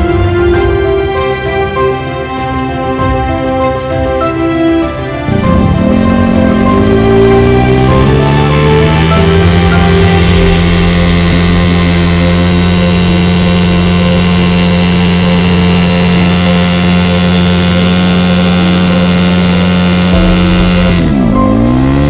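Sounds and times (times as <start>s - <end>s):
motorcycle engine at high revs: 5.3s - 22.0s.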